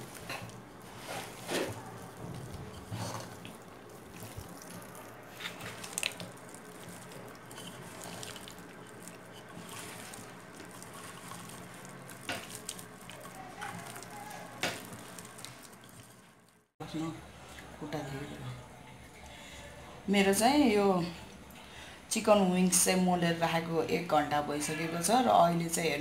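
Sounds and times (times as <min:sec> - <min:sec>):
wet squelches of hand kneading: 0:00.0 - 0:16.5.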